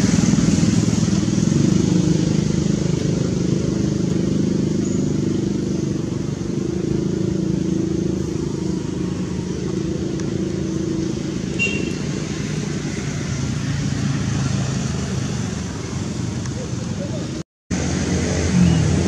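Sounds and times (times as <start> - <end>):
road traffic engines humming: 0.0 - 19.0.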